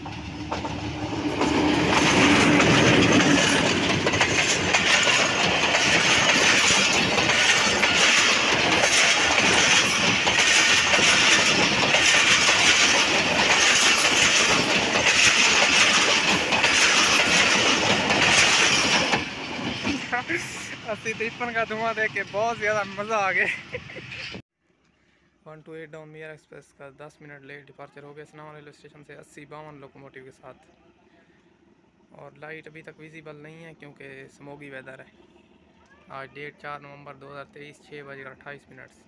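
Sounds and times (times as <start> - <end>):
diesel locomotive engine: 0.0 - 24.4, 28.5 - 39.0
train coaches rumbling past: 0.0 - 24.4
wheels clickety-clack over rail joints: 0.0 - 24.4.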